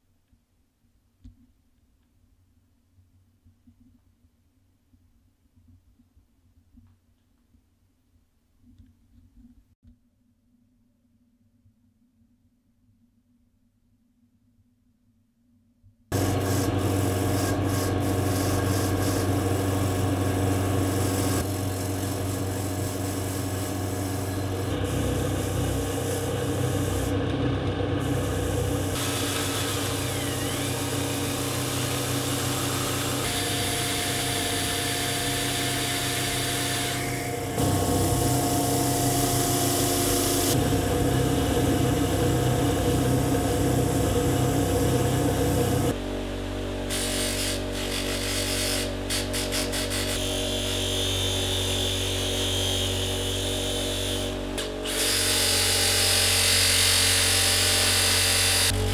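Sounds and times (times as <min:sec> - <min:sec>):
drill press motor hum: 0:16.1 - 0:58.9.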